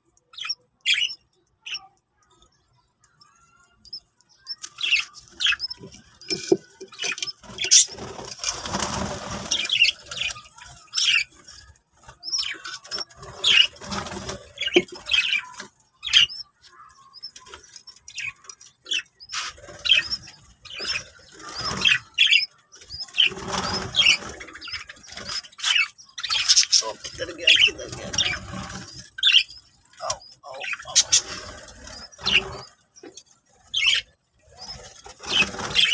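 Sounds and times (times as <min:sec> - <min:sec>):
small parrots chirping: 0:03.2 - 0:35.9
rustling: 0:04.9 - 0:15.5.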